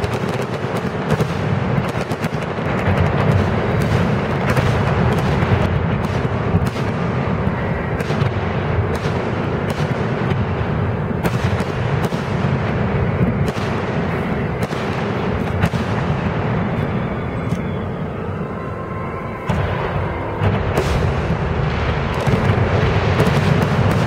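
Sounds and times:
firework bangs and cracks: 0:00.0 - 0:24.0
low rumble of booms: 0:19.0 - 0:24.0.

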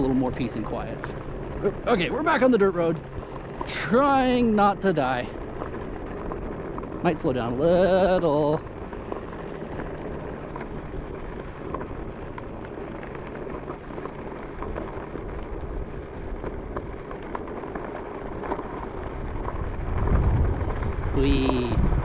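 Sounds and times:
tyres rolling over gravel road: 0:00.0 - 0:22.0
wind rumble on microphone: 0:00.0 - 0:22.0.

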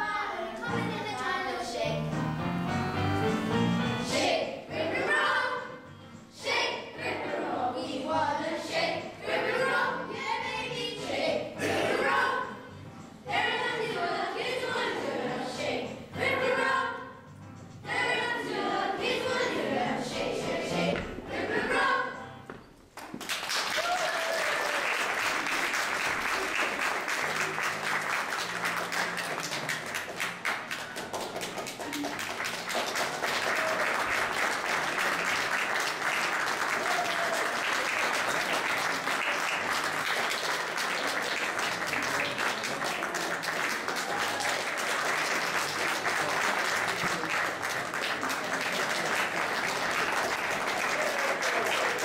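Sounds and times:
audience applauding: 0:23.0 - 0:52.0.

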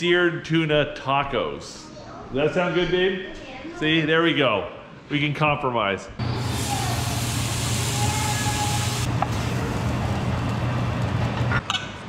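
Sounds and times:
fish sizzling in frying pan: 0:06.4 - 0:09.7.

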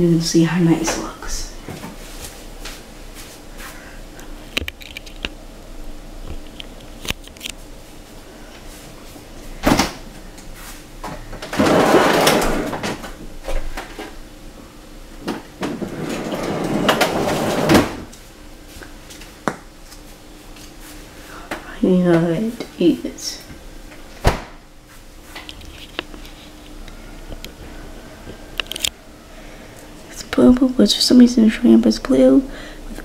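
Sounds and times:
rustling and scraping: 0:24.8 - 0:26.8.

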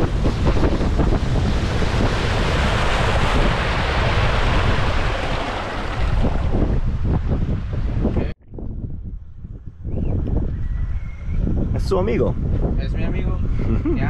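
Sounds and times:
rushing water: 0:00.0 - 0:08.2
wind buffeting microphone: 0:00.0 - 0:14.0.

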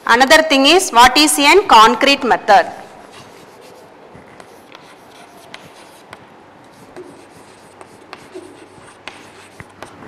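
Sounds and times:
chalk tapping and scratching: 0:03.0 - 0:10.0.

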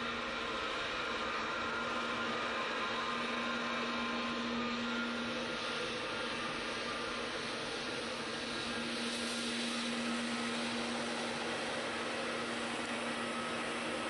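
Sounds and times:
jet airliner engine rush: 0:03.8 - 0:14.0.

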